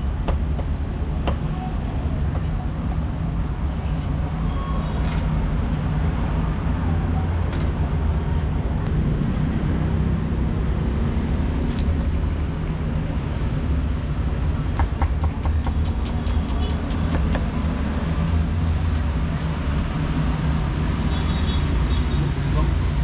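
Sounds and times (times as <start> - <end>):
low rumble of street traffic: 0.0 - 23.0
cleaver chopping on wooden board: 14.8 - 17.5.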